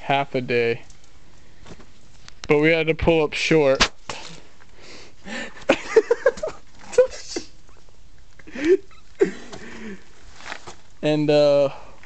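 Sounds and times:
rustling: 8.9 - 11.1.

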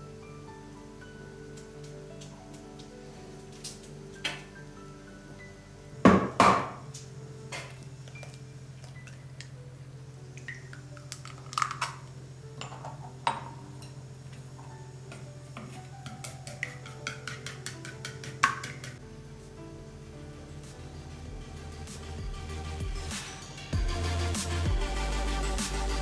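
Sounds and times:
soft background music: 0.0 - 26.0
egg cracking: 10.3 - 12.2, 16.0 - 19.0.

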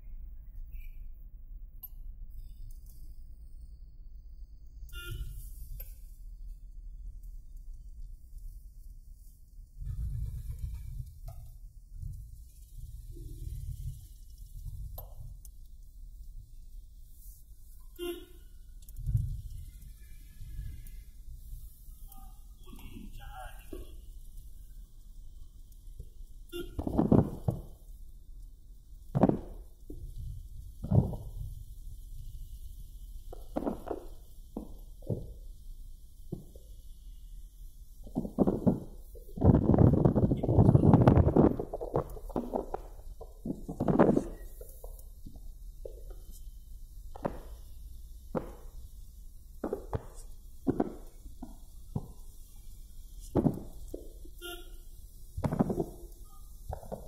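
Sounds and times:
knocks and thumps: 26.8 - 27.7, 29.2 - 29.5, 38.1 - 46.1, 55.4 - 56.0.

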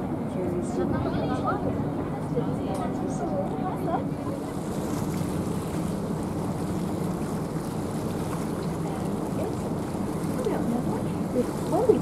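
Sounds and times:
boat engine hum: 0.0 - 12.0
water rushing: 4.0 - 12.0.

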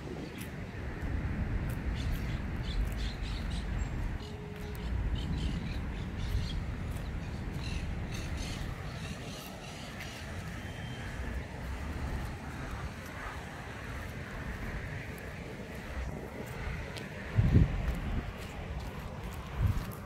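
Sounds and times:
distant road traffic rumble: 0.0 - 20.0
birds calling: 1.9 - 12.4.

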